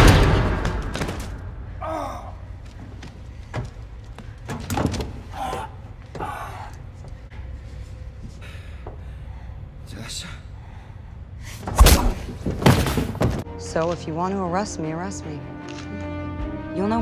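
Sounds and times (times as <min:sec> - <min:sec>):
low mechanical hum: 0:01.4 - 0:13.5
man grunting and breathing heavily: 0:05.3 - 0:07.0
sharp knocks and thuds: 0:11.6 - 0:13.4.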